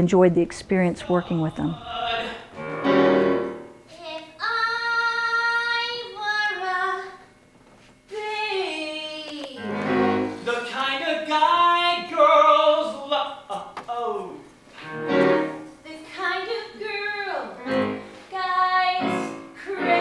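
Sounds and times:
woman singing high notes: 16.8 - 20.0.

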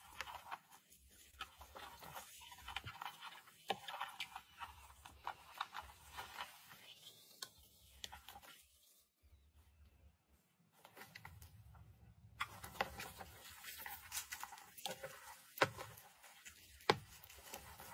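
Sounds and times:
cricket legs scratching on substrate: 0.0 - 8.8, 12.4 - 17.9.

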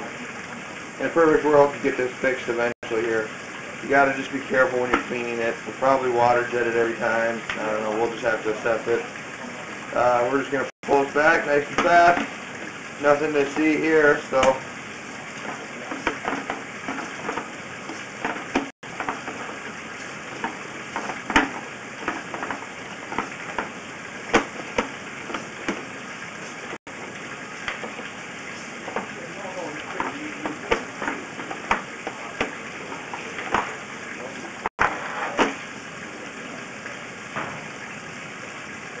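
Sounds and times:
cable crackling hiss in pipe: 24.8 - 35.6.

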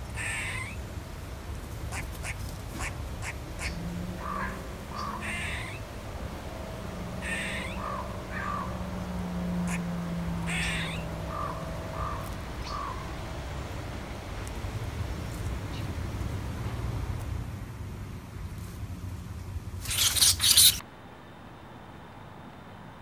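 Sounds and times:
low steady hum: 0.0 - 23.0
crow cawing: 0.2 - 0.8, 1.9 - 6.0, 6.9 - 13.4.

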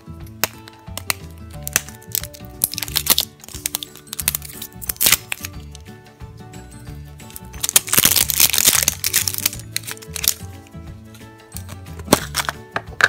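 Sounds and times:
background music with bass line: 0.0 - 13.0
shrink-wrap crinkling and clicking: 0.3 - 5.8, 7.3 - 10.5.

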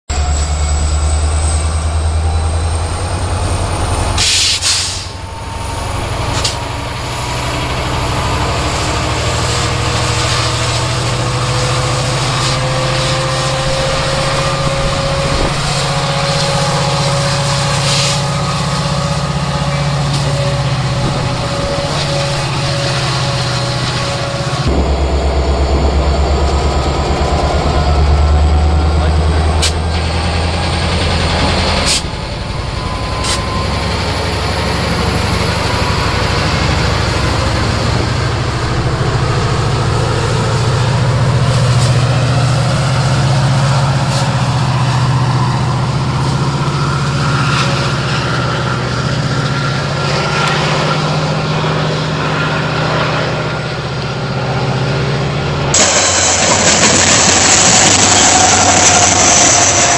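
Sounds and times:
locomotive engine with rising whine: 0.1 - 59.9
locomotive passing: 0.1 - 59.9
sharp hiss of air: 4.2 - 5.2, 17.5 - 18.3, 55.8 - 59.9.

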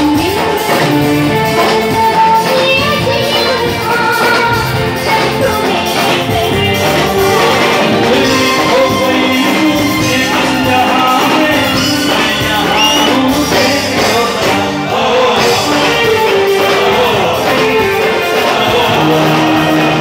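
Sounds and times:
woman singing into microphone: 0.0 - 14.4
band accompaniment through speakers: 0.0 - 20.0.

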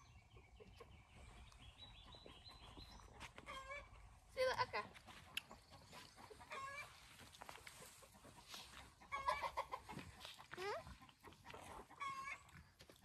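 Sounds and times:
chickens clucking: 0.0 - 13.0.

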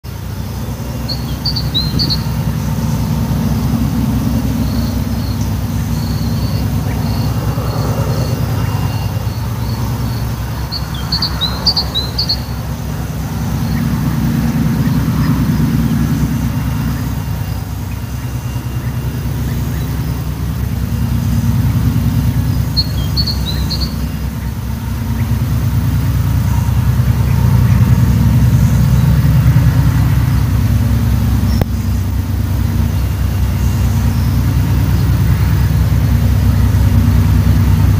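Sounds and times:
diesel locomotive engine rumble: 0.0 - 37.9
bird chirping: 0.1 - 30.2.

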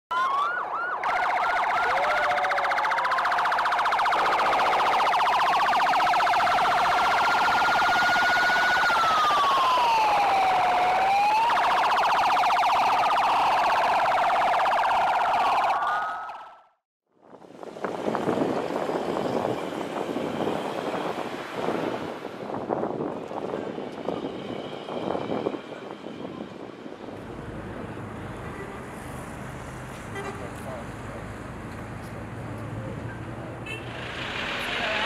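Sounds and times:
police siren wail: 0.1 - 16.5
police siren yelp: 0.1 - 16.5.

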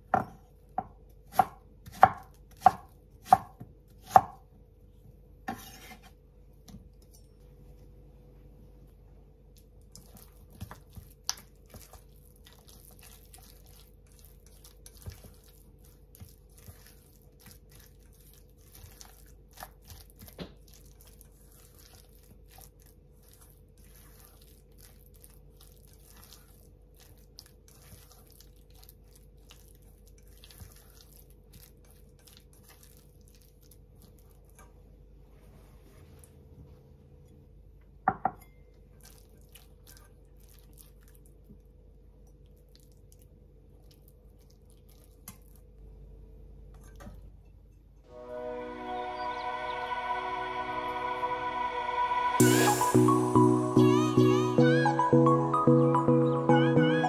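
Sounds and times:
spatula mixing wet food: 9.4 - 36.4, 38.7 - 46.0.

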